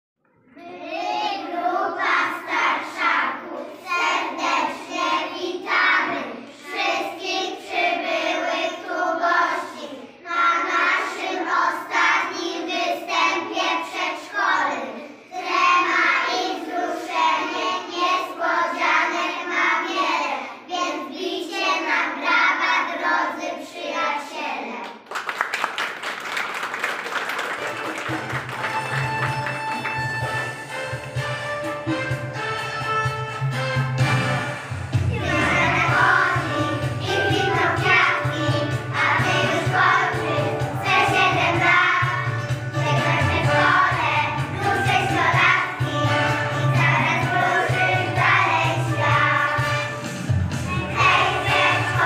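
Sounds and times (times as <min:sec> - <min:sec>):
children singing in unison: 0:00.6 - 0:24.4, 0:35.0 - 0:52.0.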